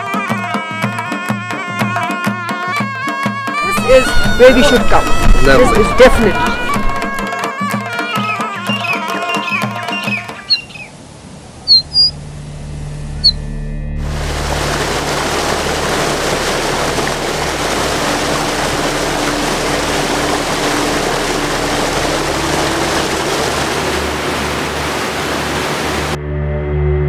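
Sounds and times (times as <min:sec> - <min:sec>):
rush of water: 0:03.6 - 0:07.3, 0:08.8 - 0:12.1, 0:14.0 - 0:26.2.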